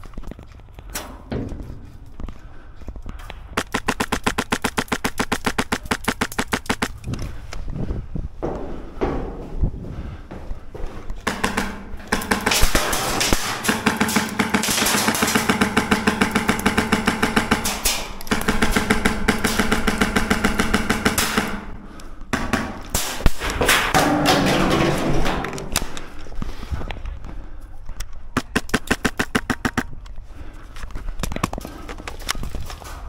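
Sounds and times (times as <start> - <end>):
airsoft guns firing bursts: 3.6 - 7.0, 11.2 - 24.0, 28.4 - 29.9.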